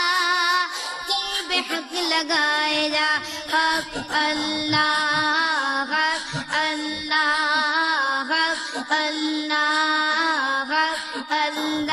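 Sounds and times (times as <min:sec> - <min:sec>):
man singing: 0:01.1 - 0:07.6.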